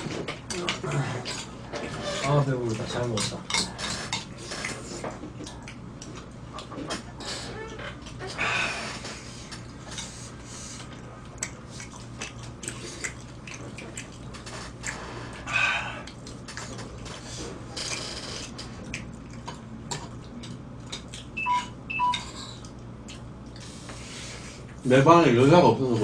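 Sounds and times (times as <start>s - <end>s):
short high beeps: 21.4s - 22.2s.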